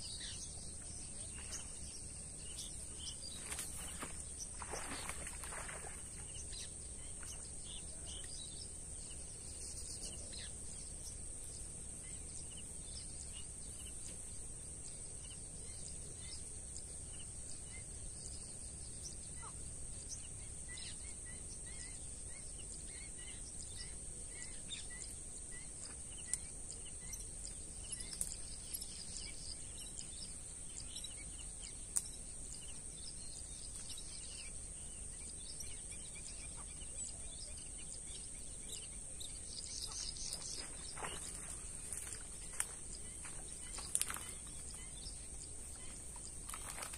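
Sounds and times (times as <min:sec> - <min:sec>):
birds chirping: 0:00.0 - 0:46.9.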